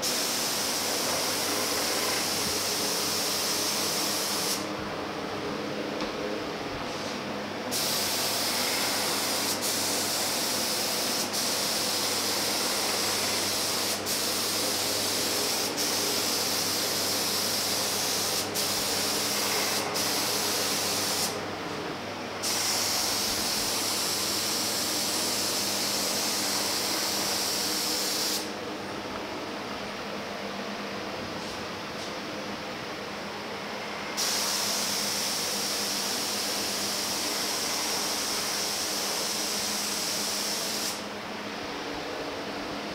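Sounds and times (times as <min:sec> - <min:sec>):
spray gun hissing: 0:00.0 - 0:04.7, 0:06.9 - 0:21.4, 0:22.4 - 0:28.6, 0:34.2 - 0:41.1.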